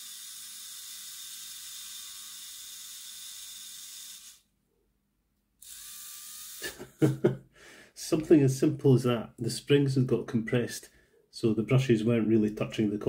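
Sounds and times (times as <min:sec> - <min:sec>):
small electric motor whirring: 0:00.0 - 0:04.5, 0:05.6 - 0:06.8.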